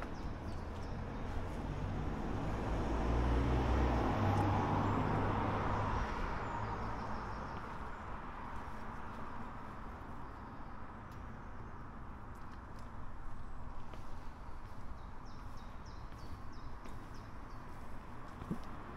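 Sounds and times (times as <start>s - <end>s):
vehicle passing by: 0.2s - 7.7s.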